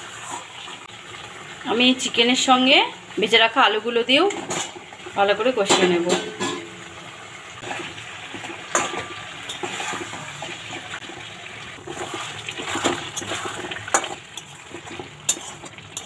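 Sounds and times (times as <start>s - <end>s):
food sizzling in a pan: 0.0s - 16.0s
metal spatula scraping pan: 4.3s - 5.0s, 5.7s - 6.9s, 7.6s - 16.0s.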